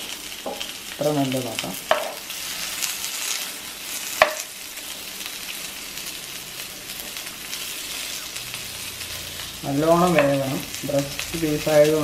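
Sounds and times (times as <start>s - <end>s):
chicken sizzling in oil: 0.0s - 12.0s.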